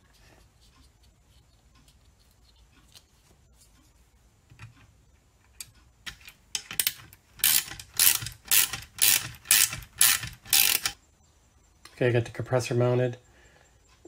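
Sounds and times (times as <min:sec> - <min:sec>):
ratchet wrench clicking: 0:06.1 - 0:11.0.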